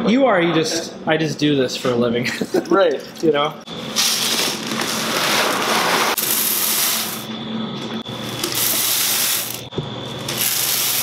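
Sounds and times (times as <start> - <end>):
popcorn kernels pouring into hopper: 4.0 - 7.3, 8.3 - 11.0.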